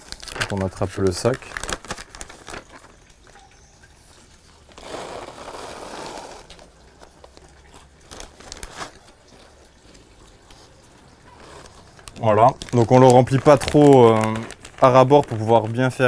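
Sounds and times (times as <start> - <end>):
bait pouring into plastic bag: 0.0 - 3.0, 4.8 - 9.8, 11.4 - 16.0
light clicks and rustles: 0.0 - 4.7, 6.4 - 16.0
plastic bag crinkling: 0.0 - 16.0.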